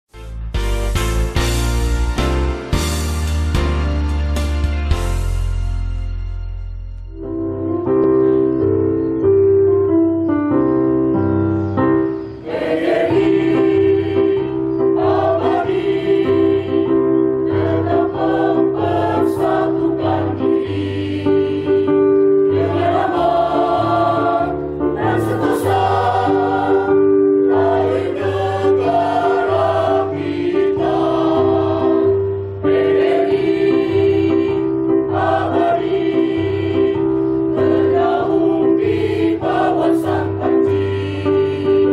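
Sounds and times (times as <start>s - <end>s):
keyboard accompaniment: 0.1s - 41.9s
choir singing in unison: 12.3s - 41.9s.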